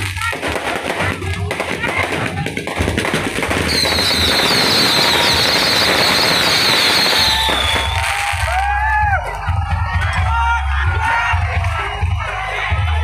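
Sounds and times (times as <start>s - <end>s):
firecrackers crackling: 0.0s - 8.8s.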